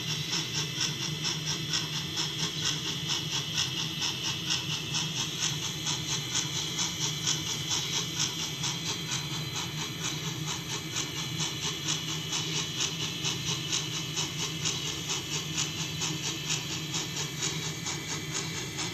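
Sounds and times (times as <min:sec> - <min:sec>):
steady low hum: 0:00.0 - 0:18.9
steam locomotive chuffing: 0:00.0 - 0:18.9.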